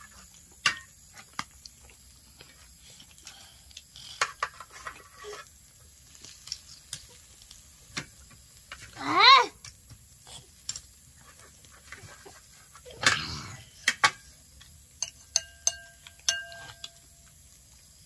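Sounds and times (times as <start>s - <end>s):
rustle: 0.0s - 18.0s
spoons clinking on steel plates: 15.0s - 17.3s.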